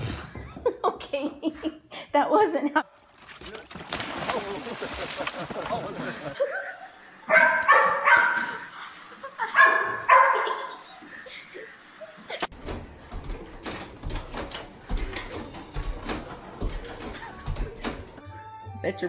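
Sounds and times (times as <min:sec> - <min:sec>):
small dog barking: 0:07.3 - 0:08.6, 0:09.6 - 0:10.6.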